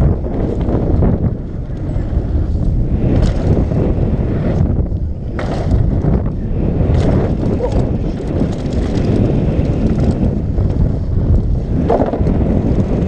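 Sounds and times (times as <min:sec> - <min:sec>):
wind buffeting microphone: 0:00.0 - 0:13.0
bike parts rattling: 0:05.3 - 0:12.4.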